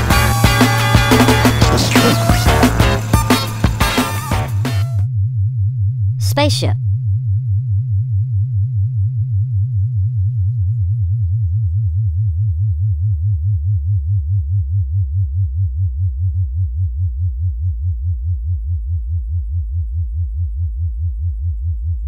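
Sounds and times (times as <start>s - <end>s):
pulsing spaceship engine hum: 0.0s - 6.2s.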